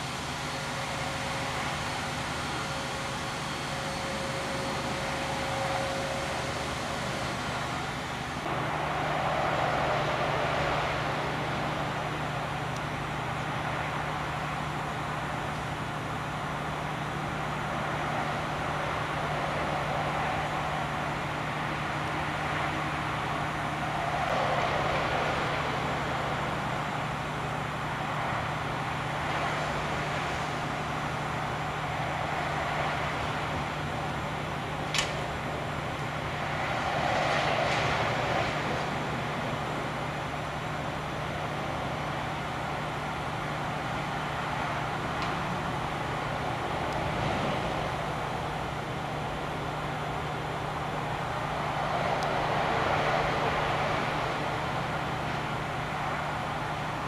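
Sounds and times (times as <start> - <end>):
low hum: 0.0 - 57.0
sharp metallic click: 34.9 - 35.2.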